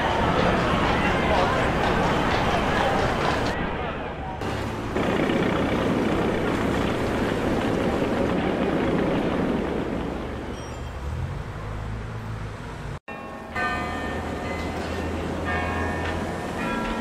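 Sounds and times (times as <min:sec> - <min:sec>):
church bells ringing: 0:13.1 - 0:17.0.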